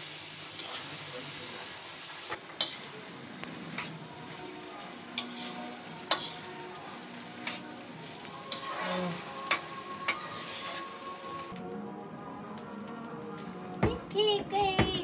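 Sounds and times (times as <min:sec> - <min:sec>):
rice sizzling in pan: 0:00.0 - 0:15.0
metal spoon clinking on pan: 0:05.2 - 0:06.4.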